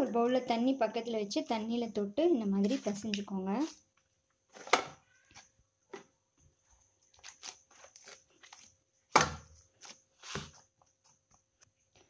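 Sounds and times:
hand kneading dough: 2.5 - 11.9
dough thumps: 9.1 - 11.3.

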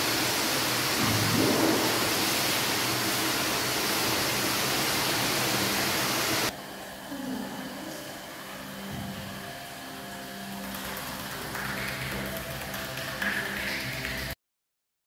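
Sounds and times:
loud steady hiss: 0.0 - 6.6.

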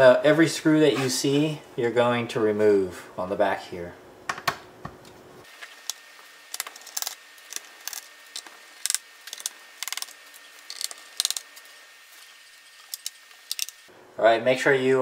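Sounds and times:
screwdriver clicking on screws: 6.6 - 10.1, 10.7 - 11.4.

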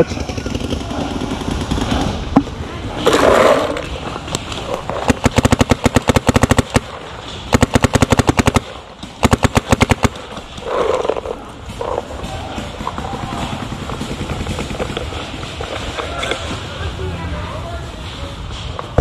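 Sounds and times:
paintball marker firing rapidly: 4.7 - 15.3.

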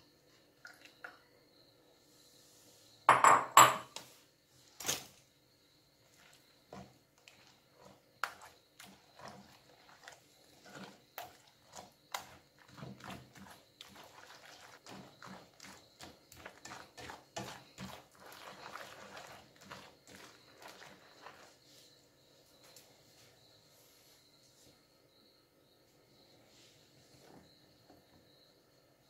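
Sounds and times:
wet batter squelching: 6.0 - 21.9.

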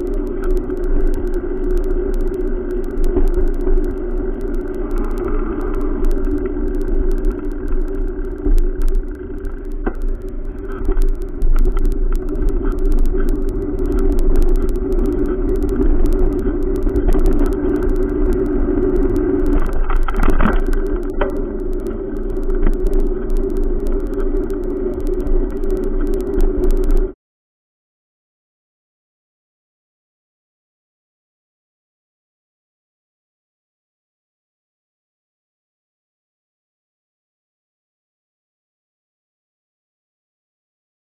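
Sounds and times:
small clicks: 0.0 - 27.2.

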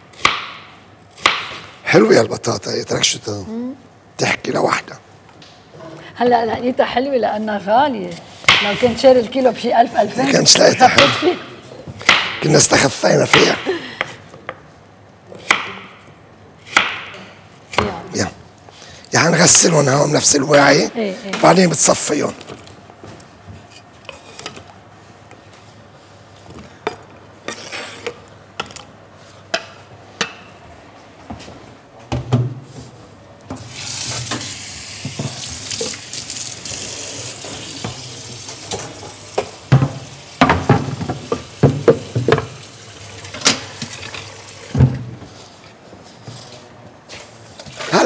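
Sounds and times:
water running in sink: 33.7 - 44.8.

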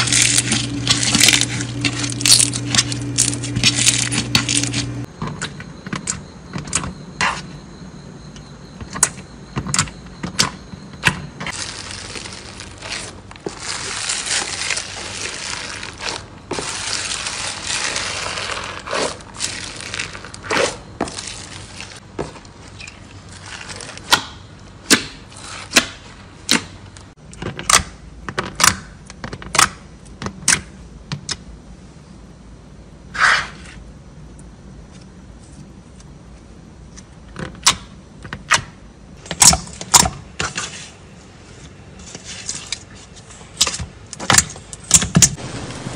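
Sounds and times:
slime squishing: 11.5 - 22.0.

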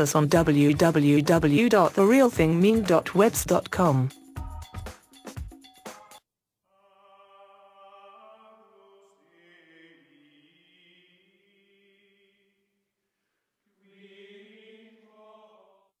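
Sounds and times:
choir-like sung notes: 6.8 - 12.0.

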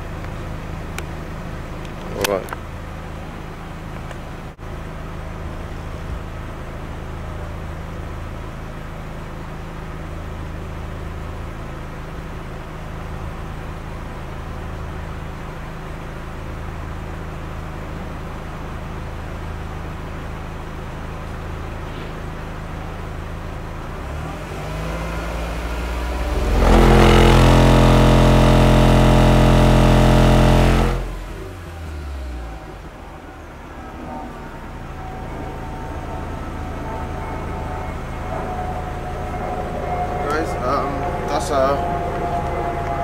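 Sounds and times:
subwoofers playing low test tone: 23.0 - 43.0.

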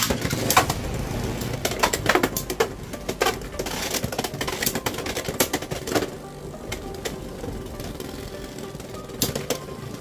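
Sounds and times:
spinning tops whirring: 0.0 - 10.0.

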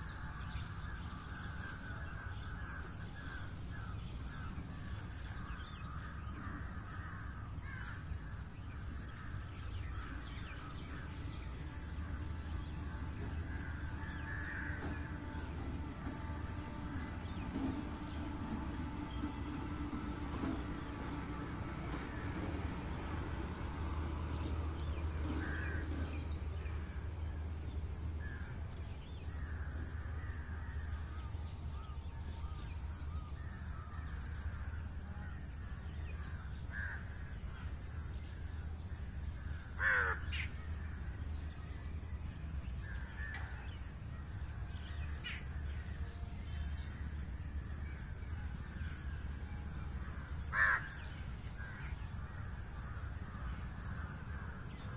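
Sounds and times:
insects chirping: 0.0 - 54.9
bird calls: 44.9 - 45.8.

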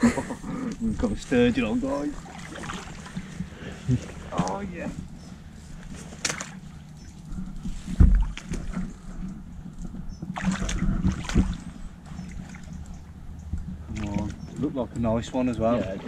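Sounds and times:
water sloshing and splashing: 0.4 - 16.0
wind noise on microphone: 7.3 - 12.3.

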